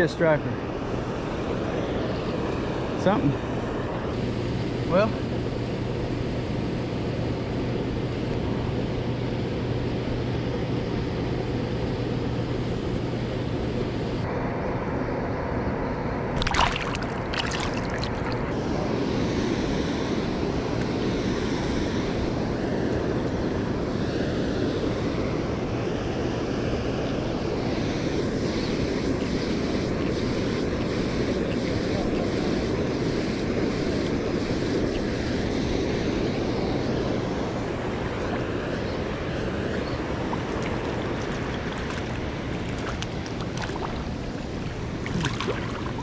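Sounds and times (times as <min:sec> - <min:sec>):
fish splashing into water: 0:16.4 - 0:18.5, 0:40.4 - 0:46.0
river water rushing: 0:16.4 - 0:18.5, 0:40.0 - 0:46.0.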